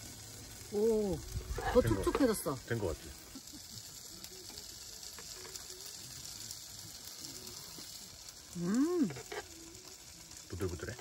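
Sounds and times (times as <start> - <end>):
meat sizzling in a pan: 0.0 - 11.0.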